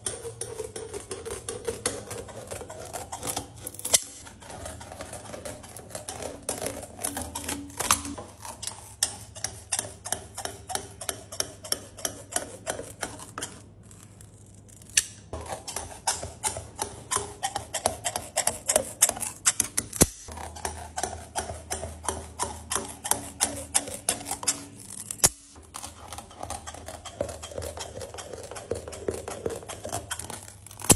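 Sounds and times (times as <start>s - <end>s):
scissors snipping hard candy: 0.3s - 10.4s, 18.2s - 20.6s, 22.8s - 30.9s.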